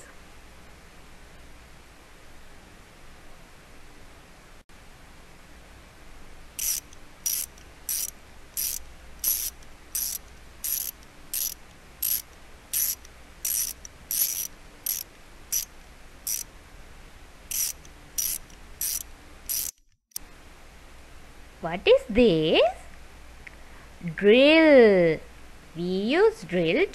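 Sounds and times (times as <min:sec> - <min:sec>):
screwdriver ratcheting: 0:06.6 - 0:15.7, 0:17.5 - 0:20.0.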